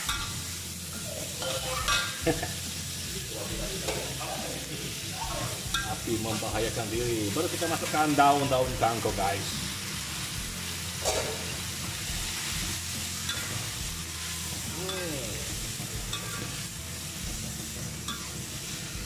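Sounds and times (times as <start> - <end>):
metal spatula scraping a pan: 0.0 - 4.3, 9.7 - 14.8, 15.4 - 19.0
vegetables sizzling in a wok: 0.0 - 19.0.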